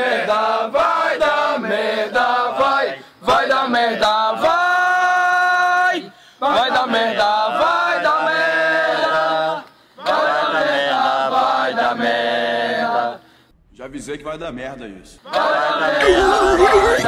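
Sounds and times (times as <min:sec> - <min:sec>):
person chanting: 0:16.0 - 0:17.0.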